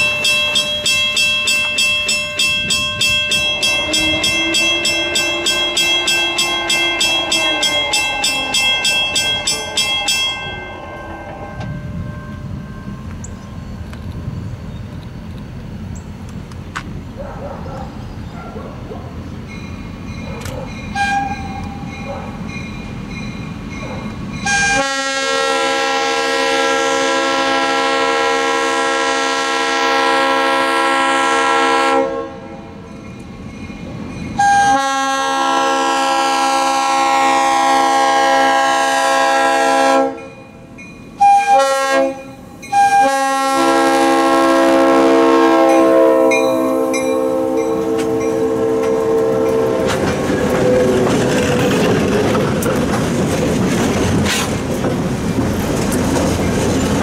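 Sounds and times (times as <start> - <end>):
locomotive air horn blasts: 3.0 - 9.0, 21.0 - 21.6, 24.4 - 32.6, 34.4 - 40.3, 41.2 - 51.0.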